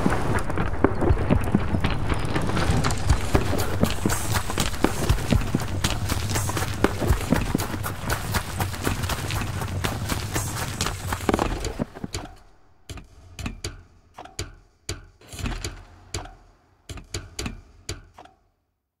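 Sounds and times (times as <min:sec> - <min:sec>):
sharp clicks with low thuds: 0:00.0 - 0:18.4.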